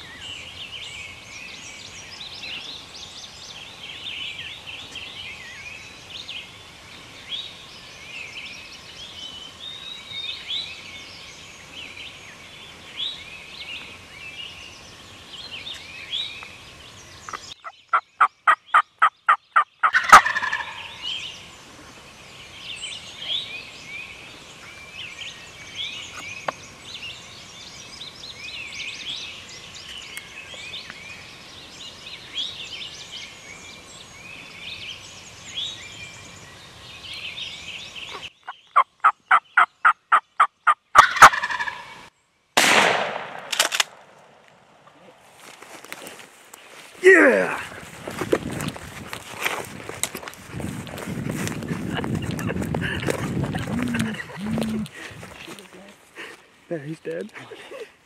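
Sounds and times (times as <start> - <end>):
songbirds chattering: 0.0 - 42.2, 43.9 - 58.0
turkey gobbling: 18.7 - 21.0, 38.8 - 42.0.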